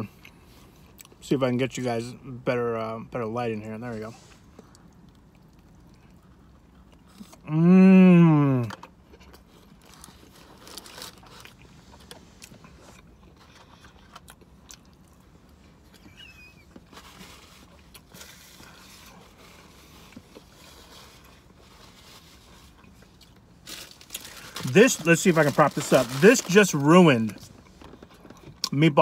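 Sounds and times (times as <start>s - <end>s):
low steady hum: 0.0s - 29.0s
person chewing: 4.4s - 25.6s.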